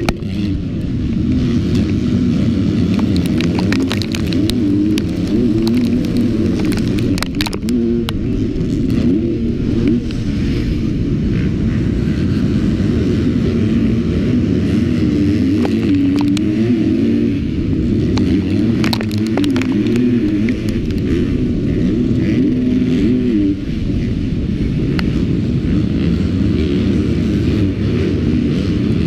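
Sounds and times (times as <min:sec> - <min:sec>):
dirt ticking against bike: 0:00.0 - 0:10.6, 0:14.7 - 0:29.0
motocross bike engine revving: 0:00.0 - 0:29.0.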